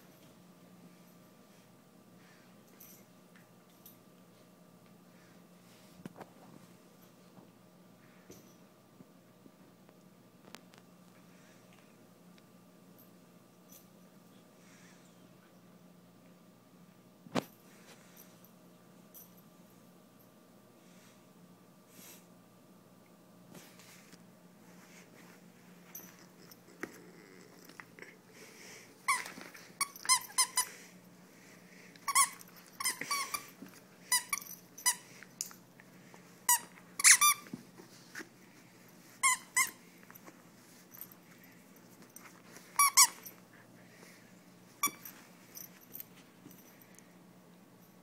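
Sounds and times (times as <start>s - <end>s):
dog toy squeaking: 29.1s - 30.7s, 32.1s - 33.5s, 36.5s - 37.5s, 39.2s - 39.8s, 42.8s - 43.2s.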